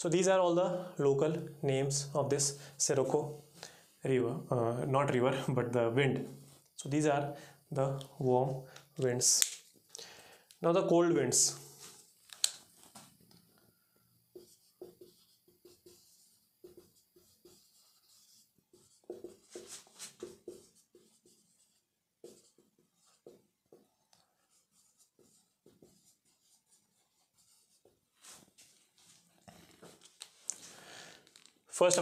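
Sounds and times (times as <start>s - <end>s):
marker squeaking on whiteboard: 12.0s - 28.5s.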